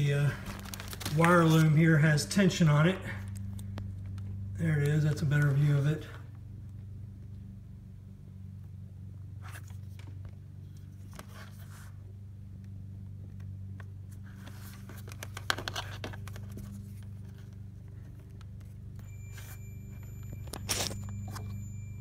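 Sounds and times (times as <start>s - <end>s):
steady low hum: 0.0s - 22.0s
multimeter continuity beep: 19.0s - 22.0s.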